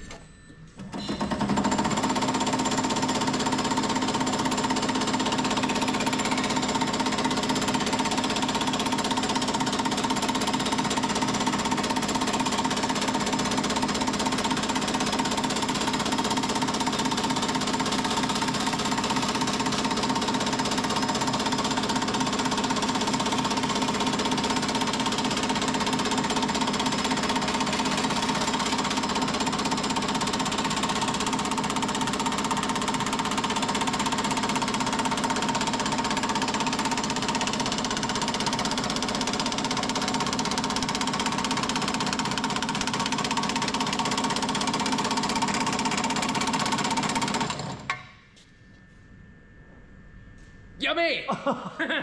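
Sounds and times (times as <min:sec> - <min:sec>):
machine hum: 0:47.5 - 0:52.0.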